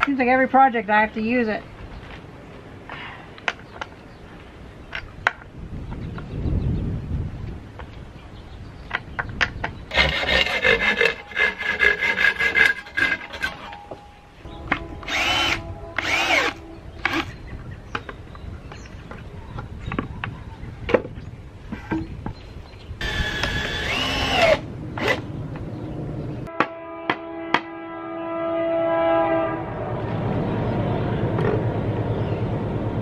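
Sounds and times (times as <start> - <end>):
cordless drill driving screws: 15.0 - 17.3, 23.0 - 25.2.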